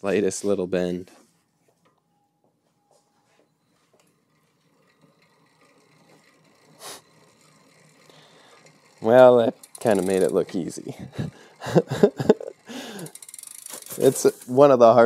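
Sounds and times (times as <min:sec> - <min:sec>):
bicycle freewheel ticking: 0:03.9 - 0:15.0.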